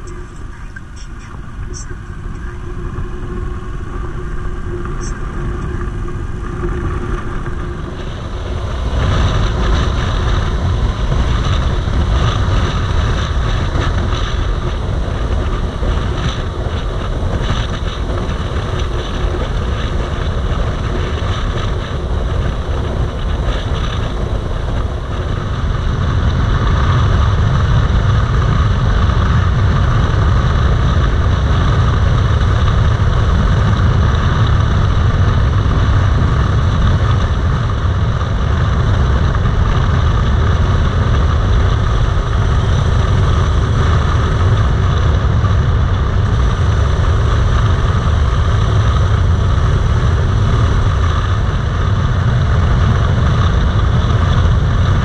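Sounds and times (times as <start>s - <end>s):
motorcycle engine running: 0.0s - 55.0s
road noise: 0.0s - 55.0s
wind rushing over microphone: 0.0s - 55.0s.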